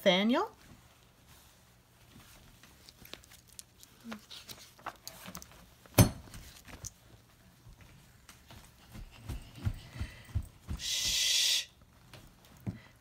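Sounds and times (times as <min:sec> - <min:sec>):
paper rustling: 0:01.3 - 0:07.2.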